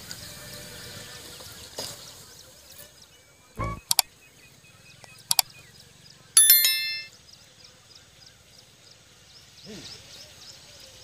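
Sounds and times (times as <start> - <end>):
mouse clicks: 3.8 - 4.0
bright bell ding: 6.4 - 7.1.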